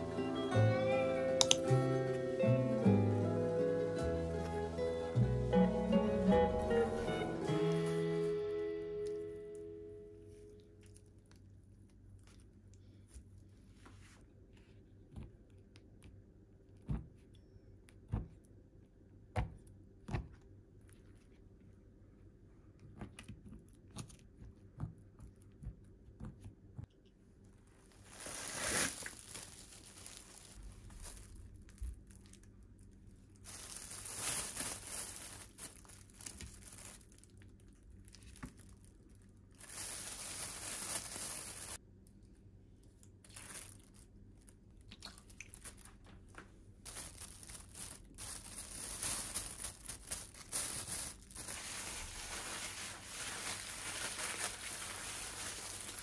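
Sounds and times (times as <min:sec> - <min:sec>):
plastic bag rustling: 0:06.1 - 0:09.2, 0:27.8 - 0:41.8, 0:43.2 - 0:44.6, 0:45.5 - 0:56.0.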